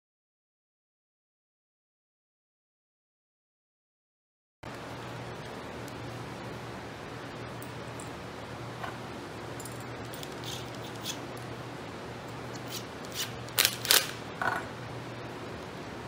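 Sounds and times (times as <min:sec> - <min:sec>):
steady low hum: 0:04.6 - 0:16.0
metallic clicks of small fastener: 0:12.6 - 0:14.2.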